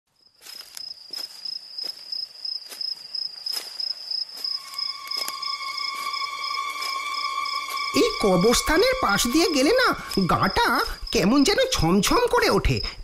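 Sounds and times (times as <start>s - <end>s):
crickets chirring: 0.1s - 13.0s
footsteps on a road: 0.3s - 8.6s.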